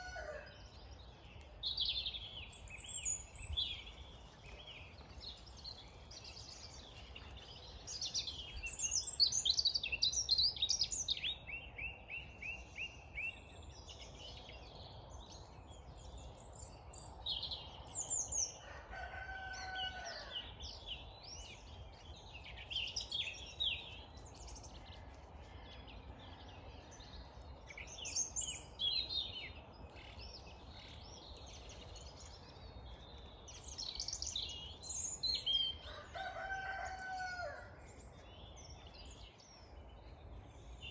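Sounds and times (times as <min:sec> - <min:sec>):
rooster crowing: 0:00.0 - 0:00.6, 0:18.6 - 0:20.4, 0:35.8 - 0:37.8
songbirds singing: 0:00.0 - 0:40.9.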